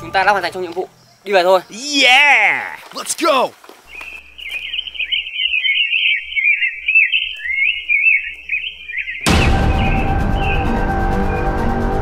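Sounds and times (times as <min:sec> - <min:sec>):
music with sudden hit: 0:09.3 - 0:12.0.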